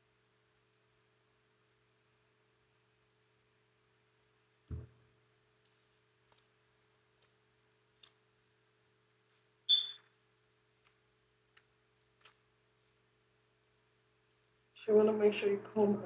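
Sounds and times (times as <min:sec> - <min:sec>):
soft thump: 0:04.7 - 0:05.0.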